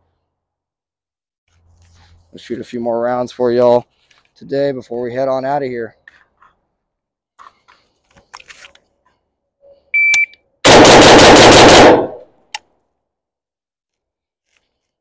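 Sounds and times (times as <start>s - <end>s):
shot timer beep: 10.0s - 10.4s
rifle firing rapid shots: 10.6s - 12.2s.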